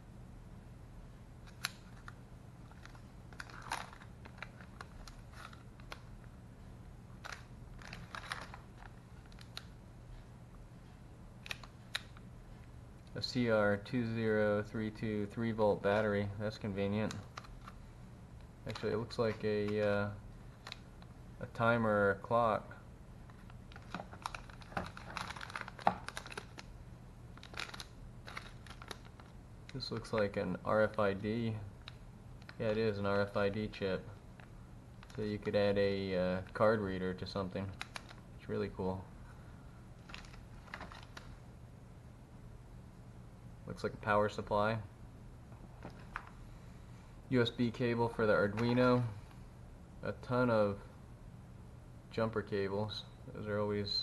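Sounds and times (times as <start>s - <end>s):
plastic bag crinkling: 2.7s - 6.0s, 7.2s - 9.7s, 23.3s - 26.7s, 27.4s - 30.2s, 37.7s - 38.2s, 40.0s - 41.4s.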